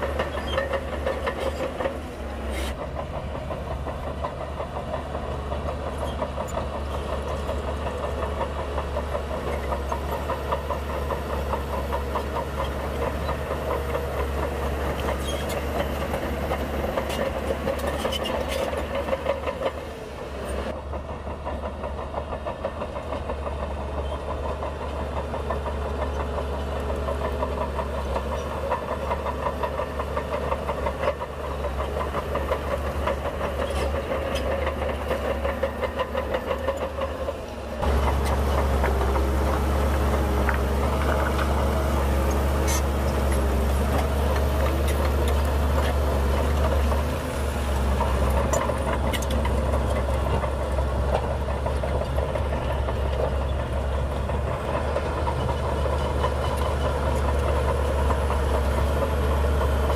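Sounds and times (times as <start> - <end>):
heavy diesel machinery running: 0.0 - 59.9.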